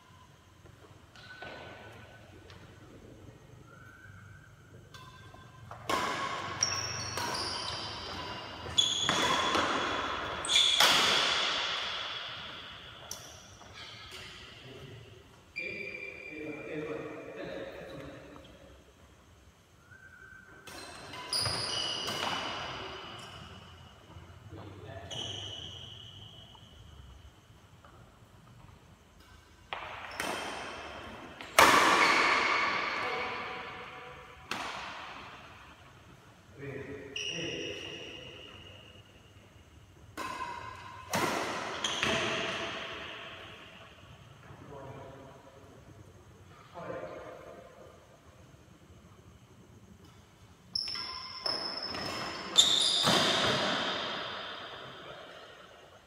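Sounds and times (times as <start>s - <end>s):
rackets hitting shuttlecock: 1.1s - 3.0s, 3.6s - 14.6s, 20.5s - 23.8s, 29.2s - 35.7s, 40.0s - 44.0s, 50.8s - 55.5s
badminton racket hitting shuttlecock: 5.0s - 13.2s.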